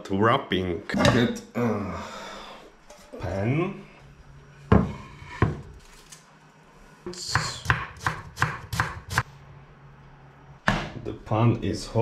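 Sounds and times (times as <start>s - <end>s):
knife chopping onion: 7.2s - 9.2s.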